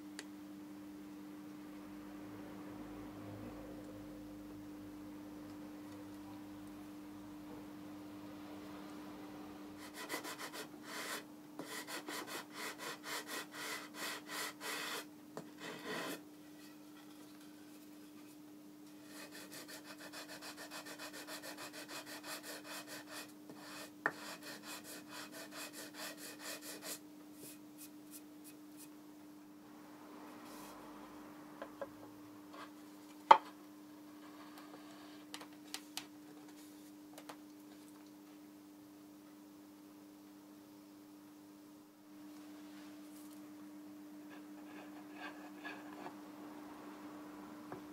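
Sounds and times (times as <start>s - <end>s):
sandpaper rubbing on wood: 19.1s - 27.0s.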